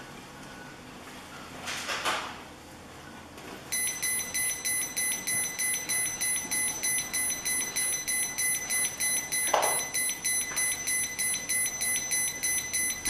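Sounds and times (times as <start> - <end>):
rapid high-pitched beeps: 3.7 - 13.0.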